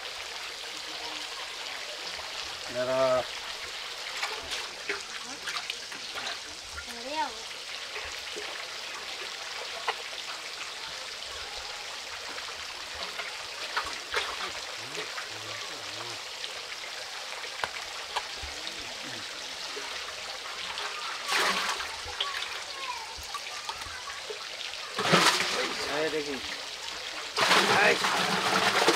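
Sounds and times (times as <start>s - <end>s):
water trickling: 0.0s - 28.9s
fish splashing into water: 19.7s - 28.9s.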